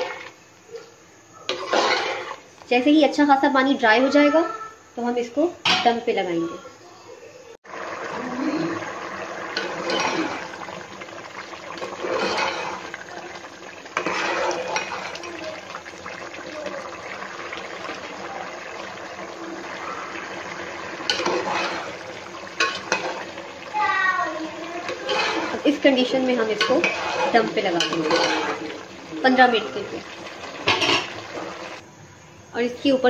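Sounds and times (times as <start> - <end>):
rice and water boiling in pot: 0.0 - 4.3, 7.6 - 33.0
metal spoon scraping pot: 1.5 - 2.4, 11.8 - 13.0, 14.0 - 15.4, 21.1 - 22.0, 24.8 - 28.8, 30.6 - 31.2.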